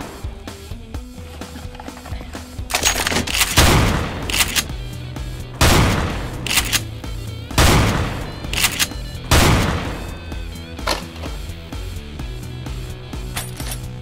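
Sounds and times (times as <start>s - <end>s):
background music: 0.0s - 14.0s
gunshots: 2.7s - 11.3s.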